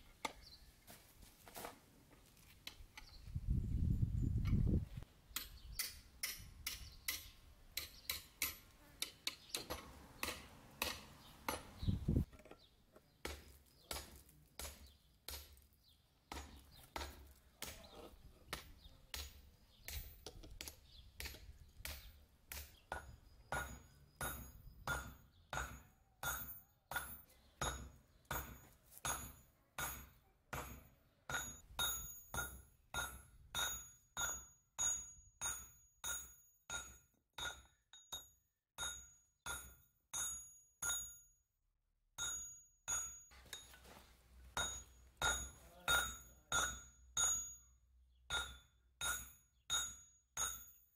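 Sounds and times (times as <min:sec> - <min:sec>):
hammer striking steel on anvil: 0:05.4 - 0:11.7, 0:18.5 - 0:41.3, 0:42.2 - 0:43.8, 0:44.6 - 0:50.9.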